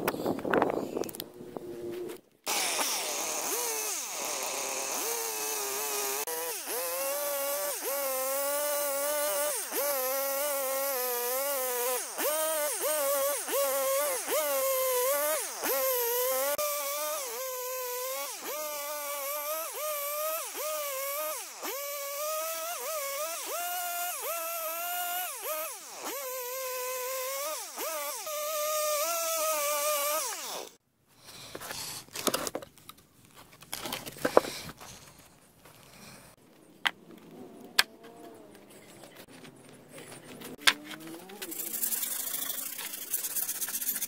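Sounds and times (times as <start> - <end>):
chainsaw cutting through log: 2.5 - 30.8, 40.4 - 44.0.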